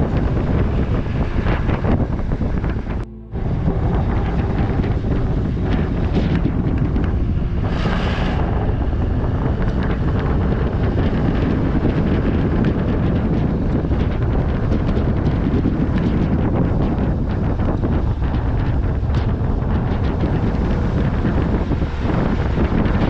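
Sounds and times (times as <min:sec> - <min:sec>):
vehicle rumbling on road: 0:00.0 - 0:23.0
wind buffeting microphone: 0:00.0 - 0:23.0.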